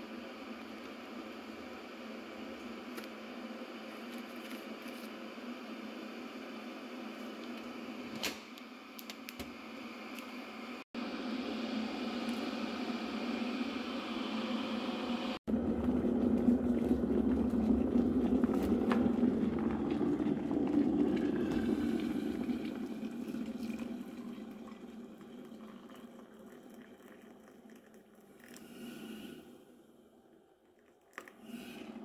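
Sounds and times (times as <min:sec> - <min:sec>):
electric kettle boiling: 0:00.0 - 0:08.0, 0:08.6 - 0:32.0
water pouring into a mug: 0:16.7 - 0:29.2.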